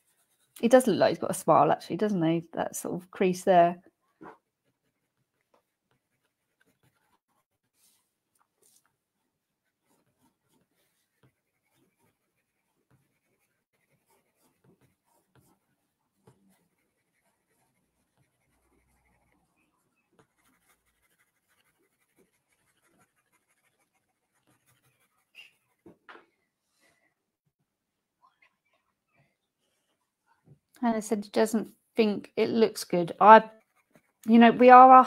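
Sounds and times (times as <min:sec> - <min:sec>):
pencil scratching on paper: 0:00.0 - 0:01.2, 0:04.1 - 0:26.1, 0:32.4 - 0:35.0.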